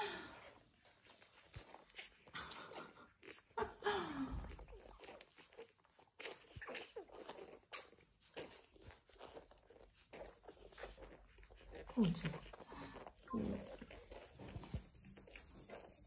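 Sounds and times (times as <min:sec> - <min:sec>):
puppies scratching and shuffling: 0:00.0 - 0:16.0
puppy whine: 0:04.4 - 0:16.0.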